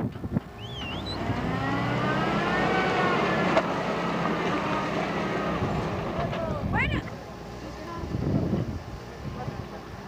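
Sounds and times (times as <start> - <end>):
vehicle engine revving: 0.6 - 6.6.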